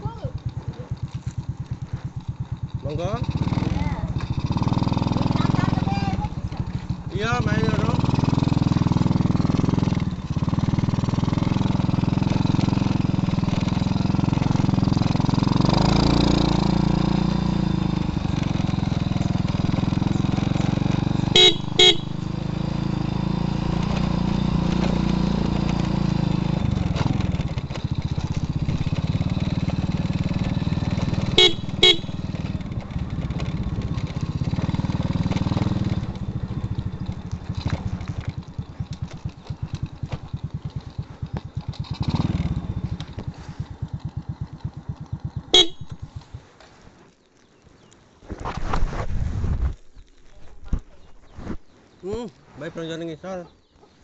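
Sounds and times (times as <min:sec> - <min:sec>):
small motorcycle engine running: 0:00.0 - 0:46.7
horn beeps: 0:21.2 - 0:22.4, 0:31.2 - 0:32.4, 0:45.5 - 0:46.1.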